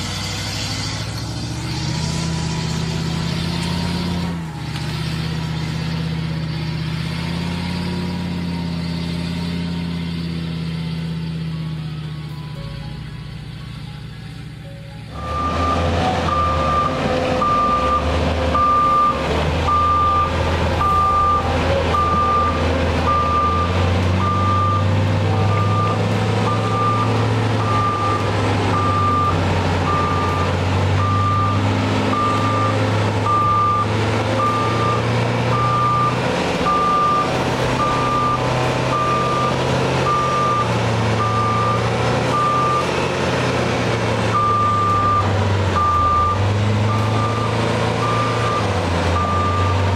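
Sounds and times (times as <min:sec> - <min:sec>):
diesel engines labouring: 0:00.0 - 0:49.9
backup alarm beeping: 0:18.6 - 0:42.9, 0:44.4 - 0:49.8.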